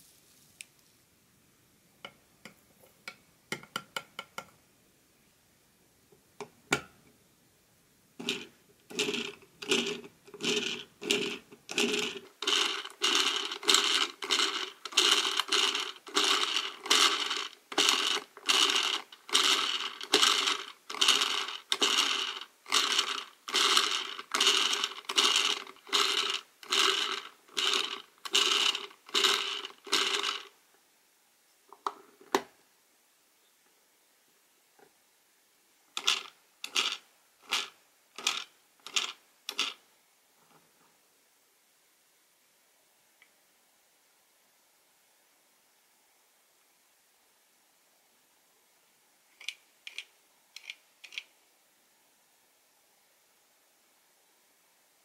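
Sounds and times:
plastic gear ratcheting: 0:08.2 - 0:30.5, 0:36.0 - 0:39.8, 0:49.4 - 0:51.3.

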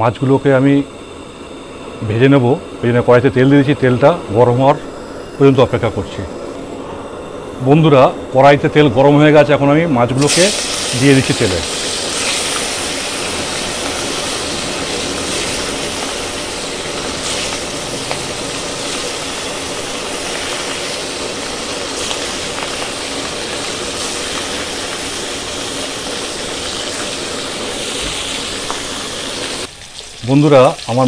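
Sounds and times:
fish frying in oil: 0:10.2 - 0:31.0.

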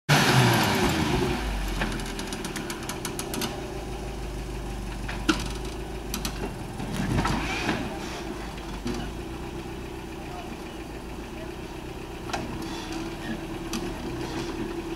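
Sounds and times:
truck engine at low revs: 0:00.1 - 0:14.9
sharp clicks and knocks: 0:01.8 - 0:03.6, 0:04.9 - 0:07.4.

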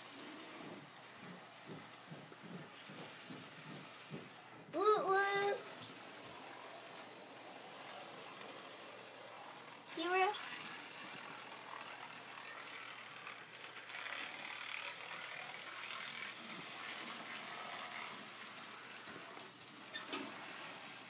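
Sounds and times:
model train whir and rattle: 0:00.0 - 0:21.0.

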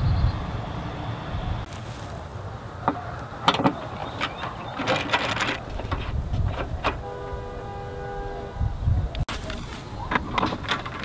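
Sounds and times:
clicks of plastic and screws: 0:10.1 - 0:11.0.

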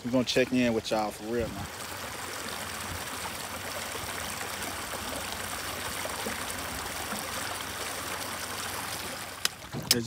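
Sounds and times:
shallow water trickling and lapping: 0:00.0 - 0:10.0.

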